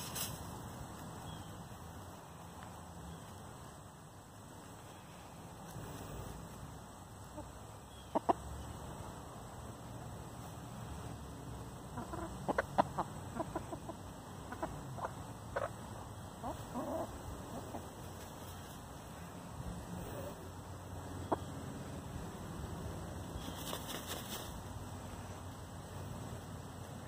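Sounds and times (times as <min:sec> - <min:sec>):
hens clucking: 0:07.2 - 0:08.6, 0:11.7 - 0:19.2, 0:19.8 - 0:24.7.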